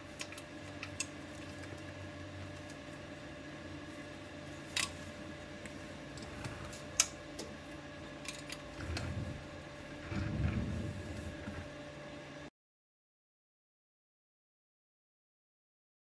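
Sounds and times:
dull handling noise: 0:08.2 - 0:11.8.

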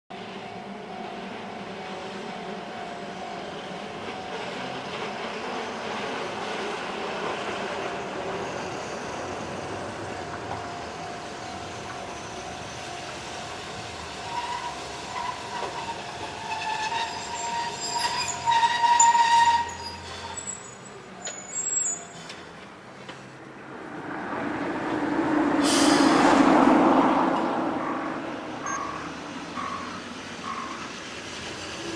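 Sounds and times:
train running: 0:00.2 - 0:23.4, 0:24.0 - 0:31.9
high wavering squeal: 0:14.2 - 0:22.2.

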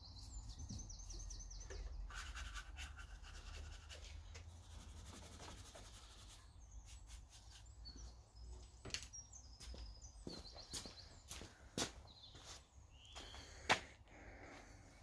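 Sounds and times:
small bird chirping: 0:00.0 - 0:13.7
brush scrubbing: 0:02.1 - 0:07.8.

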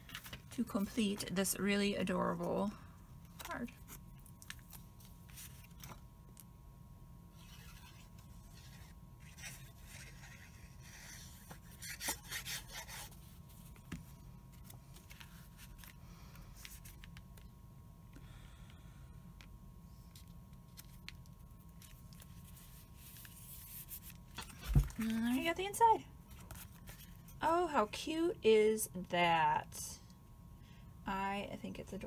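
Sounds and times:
paper rustling and scraping: 0:03.7 - 0:06.0, 0:07.4 - 0:17.2, 0:20.1 - 0:25.4.

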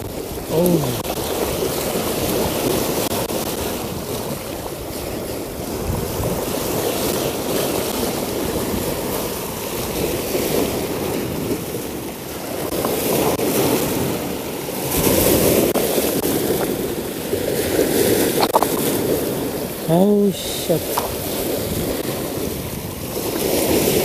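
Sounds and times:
wind buffeting microphone: 0:00.0 - 0:19.9, 0:20.8 - 0:24.0
surf splashing over rocks: 0:00.0 - 0:24.0.

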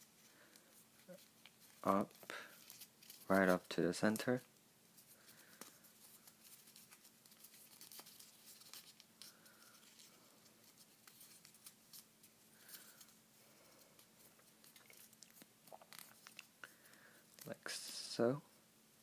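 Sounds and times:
faint steady hum: 0:00.0 - 0:19.0
paper being folded and creased: 0:00.9 - 0:13.2, 0:14.0 - 0:16.6.

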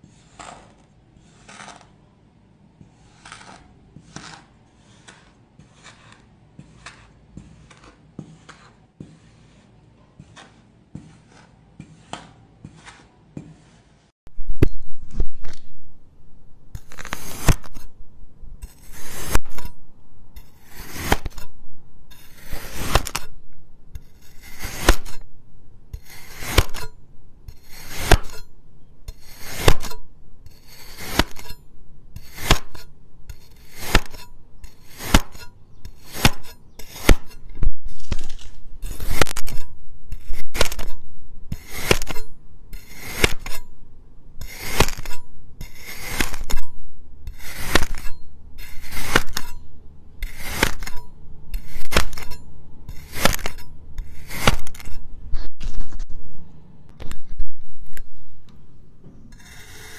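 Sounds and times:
knife slicing through sand: 0:02.9 - 0:13.9, 0:18.6 - 0:19.6, 0:22.2 - 0:23.3, 0:26.0 - 0:26.8, 0:29.2 - 0:31.5, 0:32.2 - 0:40.9, 0:41.5 - 0:42.2, 0:42.8 - 0:43.6, 0:44.4 - 0:46.6, 0:47.3 - 0:49.5, 0:50.2 - 0:55.0.

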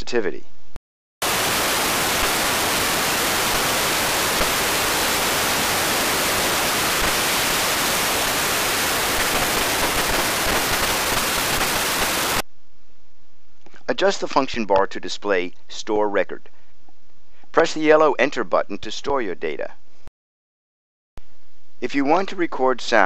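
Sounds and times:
steady rushing hiss: 0:01.2 - 0:12.4.

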